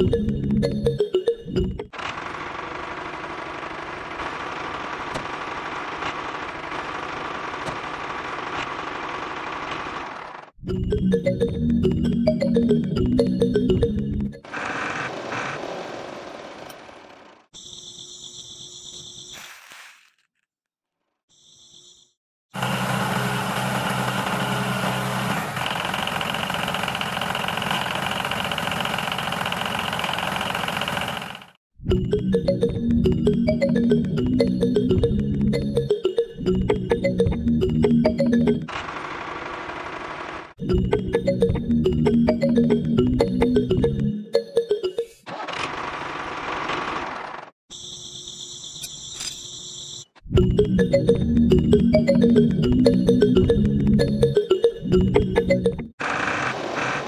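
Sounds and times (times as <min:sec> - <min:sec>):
diesel engine running: 0:22.6 - 0:31.6.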